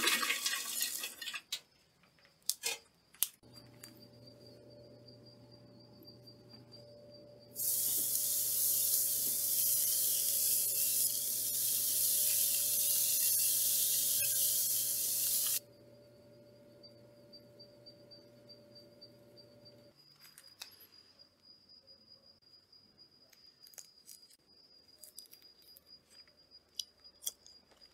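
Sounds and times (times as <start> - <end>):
meat sizzling on a grill: 7.6 - 15.6.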